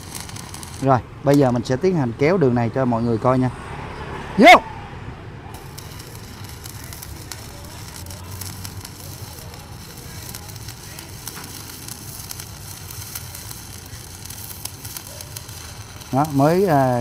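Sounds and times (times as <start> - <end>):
welding arc crackling and sizzling: 0.0 - 1.9, 5.5 - 17.0.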